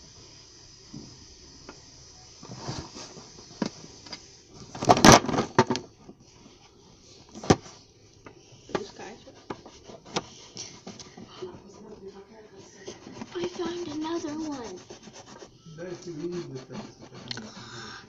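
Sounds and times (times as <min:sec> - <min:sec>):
faint steady hiss: 0:00.0 - 0:18.0
knocks and clatter on a table: 0:04.7 - 0:05.8.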